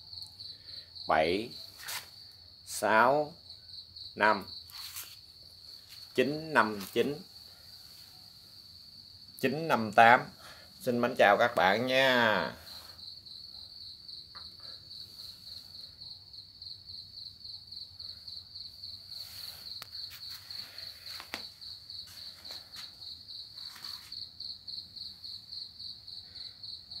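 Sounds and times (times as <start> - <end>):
cricket chirping: 0.0 - 27.0.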